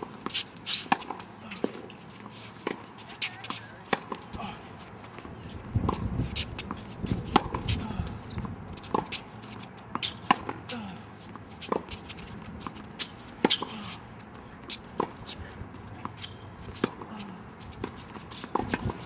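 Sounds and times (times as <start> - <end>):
tennis balls struck by rackets: 0.0 - 2.0, 2.6 - 4.6, 5.2 - 19.0.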